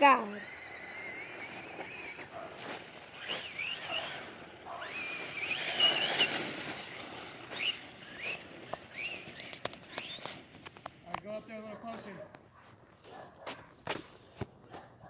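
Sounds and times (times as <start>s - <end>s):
toy truck electric motor whining: 0.0s - 11.1s.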